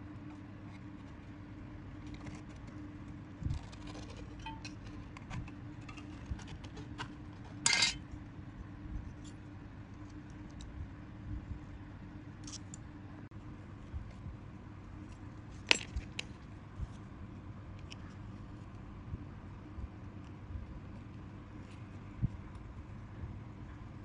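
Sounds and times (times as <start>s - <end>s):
metal sheet clicks and crinkles: 3.5s - 8.0s.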